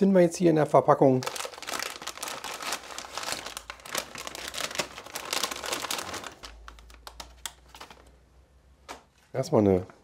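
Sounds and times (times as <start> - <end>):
plastic bag crinkling: 1.0 - 8.1.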